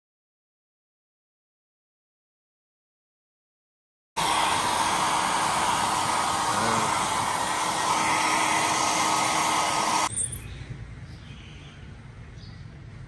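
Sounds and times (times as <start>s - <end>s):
hair dryer blowing: 4.2s - 10.1s.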